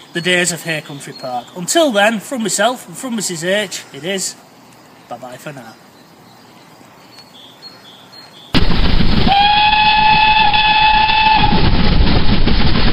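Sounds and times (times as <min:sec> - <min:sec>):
faint outdoor background: 0:00.0 - 0:11.4
train whistle chord: 0:09.3 - 0:11.6
train running: 0:09.3 - 0:12.9.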